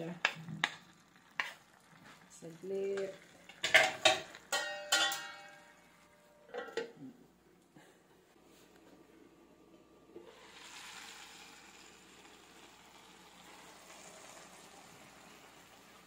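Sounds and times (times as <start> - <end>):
noodles sizzling in a frying pan: 0.0 - 6.2, 9.9 - 16.0.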